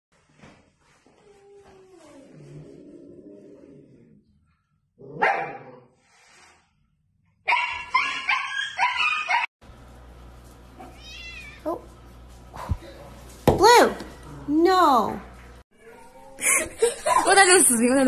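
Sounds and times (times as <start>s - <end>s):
puppy barking and yelping: 7.4s - 9.5s.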